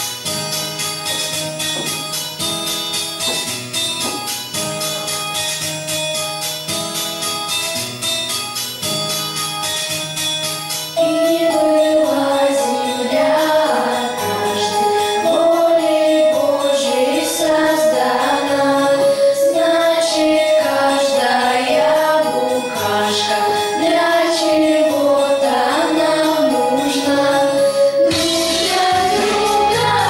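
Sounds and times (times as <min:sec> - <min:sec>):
instrumental backing music: 0:00.0 - 0:30.0
girls singing into microphones: 0:11.0 - 0:30.0.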